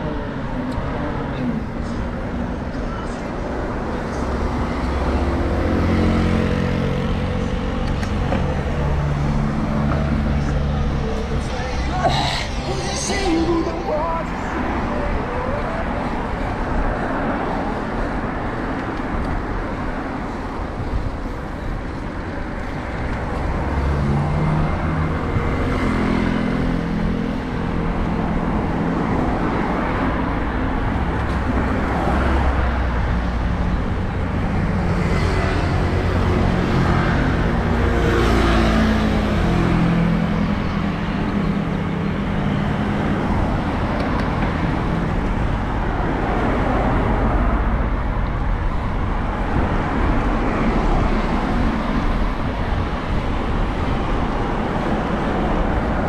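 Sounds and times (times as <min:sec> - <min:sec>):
cars passing: 0:00.0 - 0:56.0
low road rumble: 0:00.0 - 0:56.0
tyres hissing: 0:10.3 - 0:14.9.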